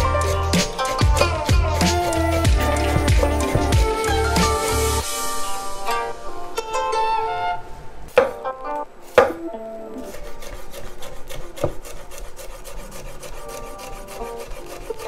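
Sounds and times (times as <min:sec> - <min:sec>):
knife chopping on wooden board: 0:08.2 - 0:08.4, 0:09.1 - 0:09.4, 0:10.1 - 0:15.0.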